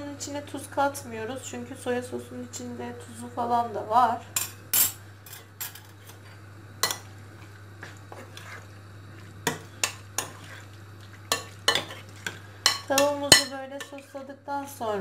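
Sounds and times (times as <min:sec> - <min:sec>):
food mixing in a bowl: 0:05.9 - 0:15.0
metal spoon clinking on glass bowl: 0:12.7 - 0:14.0.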